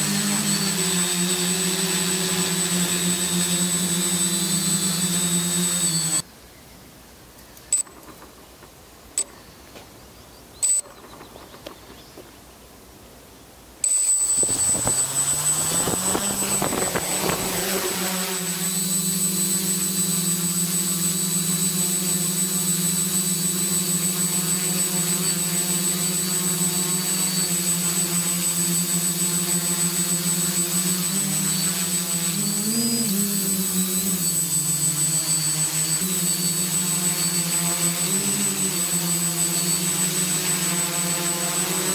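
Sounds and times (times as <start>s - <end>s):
quadcopter motors buzzing: 0.0s - 6.3s, 7.7s - 8.4s, 13.8s - 41.9s
short clicks: 7.4s - 9.4s.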